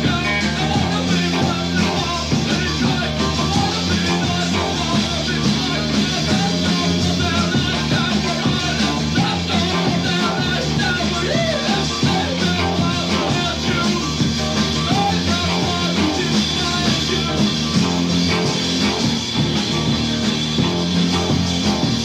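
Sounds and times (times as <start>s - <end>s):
guitar: 0.0s - 22.0s
held bass line: 0.0s - 22.0s
rock band playing: 0.0s - 22.0s.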